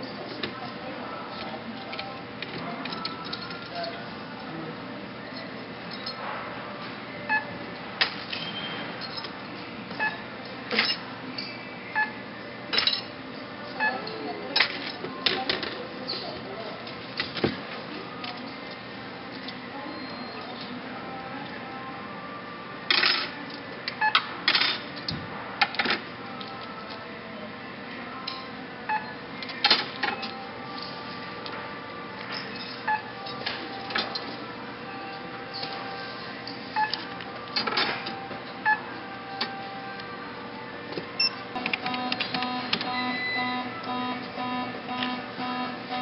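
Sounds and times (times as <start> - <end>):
faint store background: 0.0 - 46.0
barcode scanner beeping: 41.2 - 46.0.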